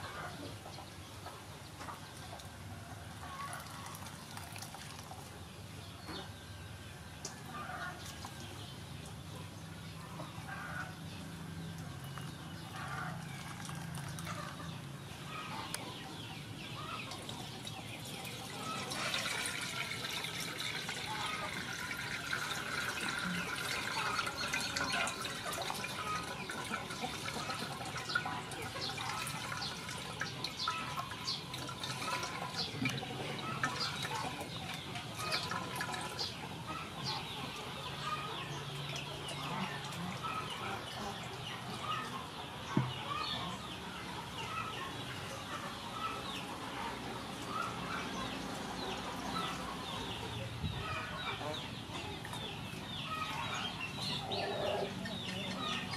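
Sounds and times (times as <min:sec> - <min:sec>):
liquid splashing and trickling: 0:03.2 - 0:05.6, 0:11.7 - 0:14.8, 0:16.7 - 0:42.0
birds calling: 0:05.6 - 0:55.9.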